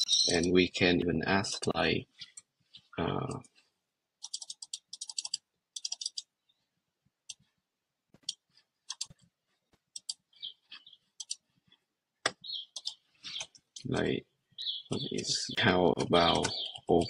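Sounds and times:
computer keyboard typing: 0:04.2 - 0:06.3, 0:08.2 - 0:09.2, 0:09.9 - 0:10.2, 0:11.2 - 0:11.4, 0:12.7 - 0:14.0, 0:15.9 - 0:17.0.

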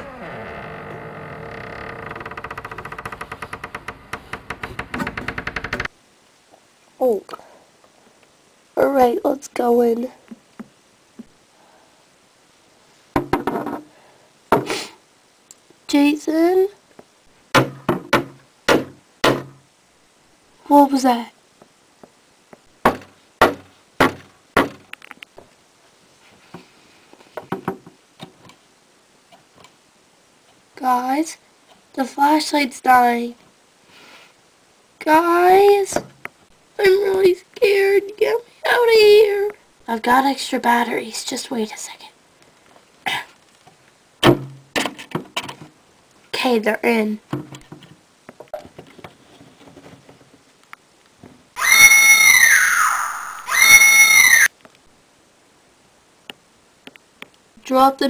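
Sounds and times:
door creaking open: 0:00.0 - 0:06.0
sharp knocks: 0:13.2 - 0:13.8, 0:17.5 - 0:19.6, 0:22.8 - 0:24.9.

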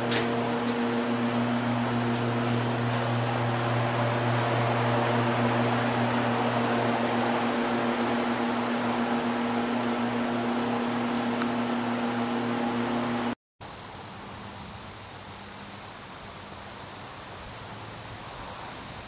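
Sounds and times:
machine humming and hissing: 0:00.0 - 0:19.0.

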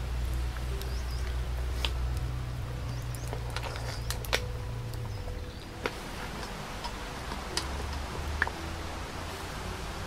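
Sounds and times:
steady low rumble: 0:00.0 - 0:10.0
mussel shells clicking on a pot: 0:00.5 - 0:08.6.

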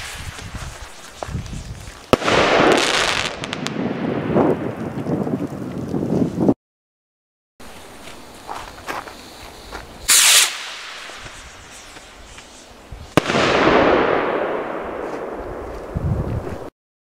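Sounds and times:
firework rocket launch hiss: 0:00.0 - 0:03.3, 0:09.2 - 0:14.4
firework bang with rolling echo: 0:02.1 - 0:04.8, 0:10.1 - 0:12.4, 0:13.1 - 0:15.9.

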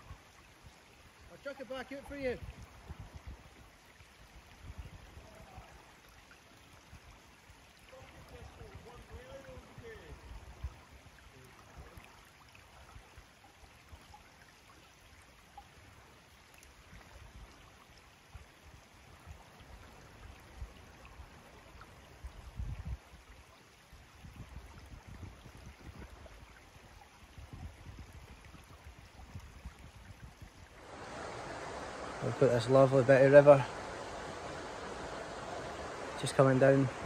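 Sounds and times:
wind buffeting microphone: 0:27.4 - 0:37.0.

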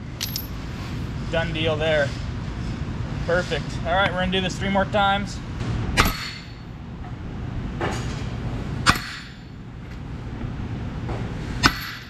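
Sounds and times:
sledge hammer striking steel pin: 0:06.0 - 0:06.5, 0:08.8 - 0:09.4, 0:11.6 - 0:12.0.

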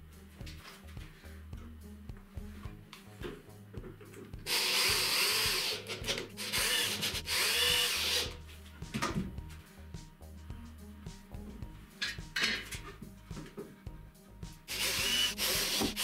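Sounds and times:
cordless drill driving screws: 0:04.5 - 0:08.4, 0:14.7 - 0:16.0.

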